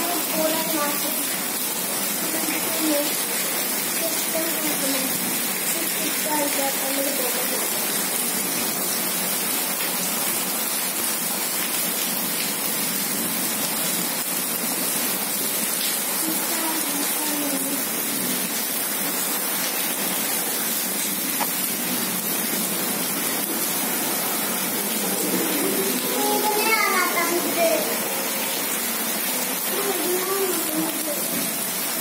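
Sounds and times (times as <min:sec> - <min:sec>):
heavy rain falling: 0:00.0 - 0:32.0.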